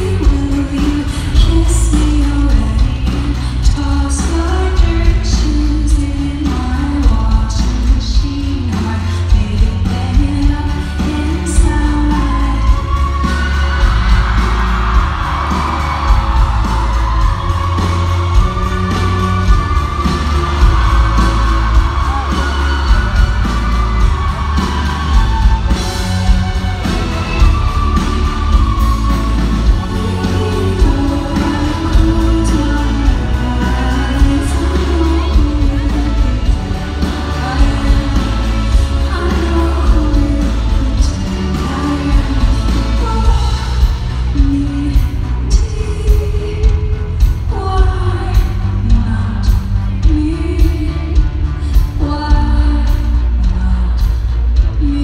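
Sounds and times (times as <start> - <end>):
live indie pop band playing: 0.0 - 55.0
woman singing: 0.0 - 55.0
audience whooping: 11.8 - 43.6.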